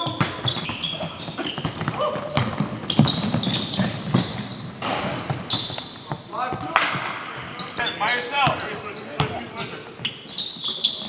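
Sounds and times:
basketball bouncing: 0.0s - 7.8s
sneakers squeaking: 0.0s - 11.0s.

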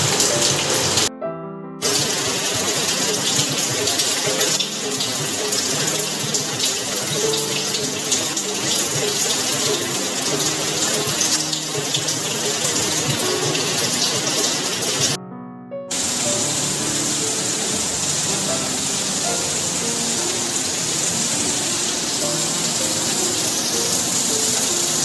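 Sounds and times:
heavy rain pouring: 0.0s - 1.1s, 1.8s - 15.2s, 15.9s - 25.0s
music: 0.0s - 25.0s.

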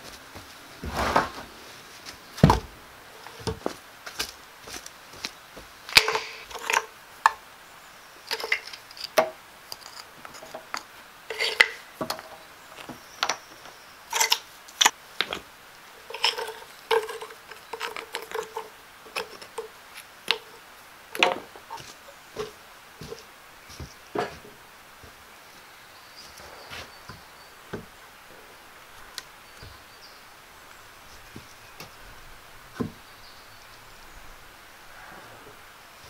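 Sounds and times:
stone slabs clinking and knocking: 5.9s - 7.4s, 8.3s - 13.5s, 16.0s - 23.3s.

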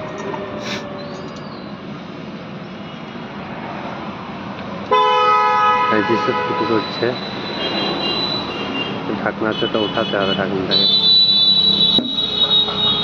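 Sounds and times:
outdoor background noise: 0.0s - 13.0s
loud steady horn blast: 4.9s - 7.0s, 7.6s - 13.0s.

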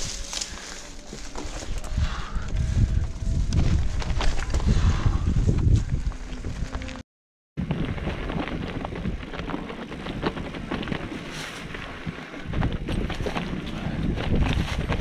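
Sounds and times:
bike tyres on stones and leaves: 0.0s - 7.0s, 7.6s - 15.0s
wind rumbling on microphone: 0.0s - 7.0s, 7.6s - 15.0s.

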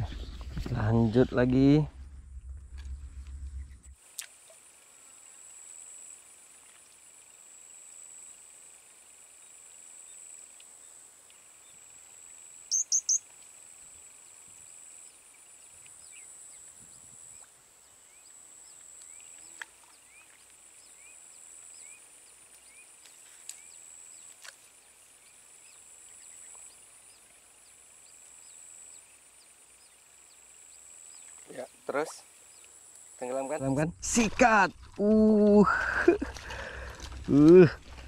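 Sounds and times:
crickets or cicadas chorus: 3.9s - 38.0s
sharp bird chirps: 12.7s - 13.2s.

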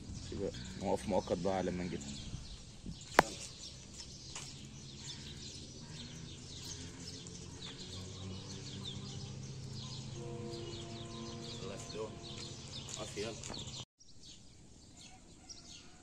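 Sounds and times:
small birds chirping: 0.0s - 16.0s.

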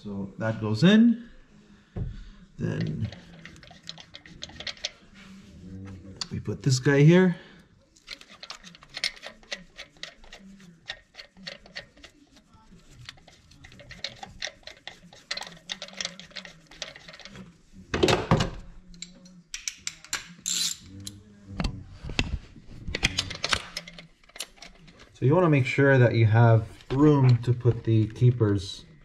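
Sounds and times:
ratchet wrench clicking: 8.0s - 12.1s, 19.6s - 20.8s.

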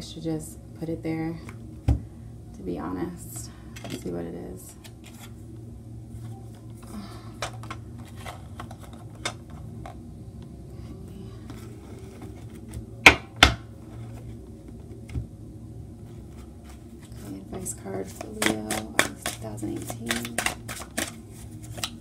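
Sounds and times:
cards set down on marble: 18.2s - 21.1s.

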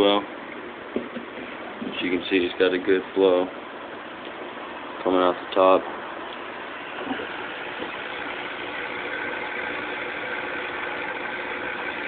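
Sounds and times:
aquarium sponge filter bubbling: 6.4s - 12.0s.

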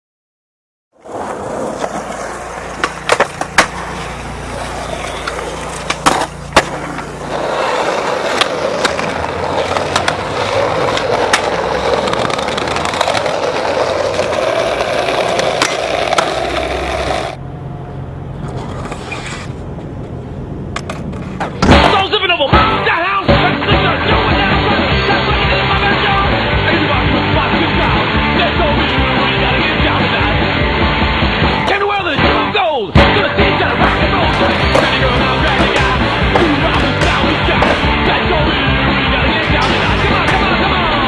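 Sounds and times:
skateboard clacks: 1.0s - 17.4s, 33.0s - 41.0s
skateboard grinding along ledge: 1.0s - 17.4s, 18.4s - 19.7s, 33.0s - 41.0s
skateboard wheels rolling on concrete: 1.0s - 17.4s, 18.2s - 41.0s.

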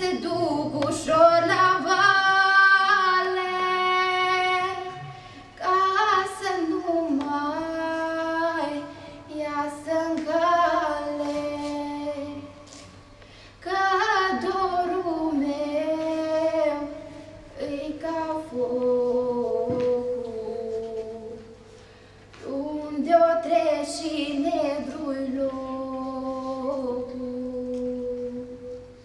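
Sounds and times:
woman singing unaccompanied: 0.0s - 12.8s, 13.6s - 21.6s, 22.4s - 29.0s.

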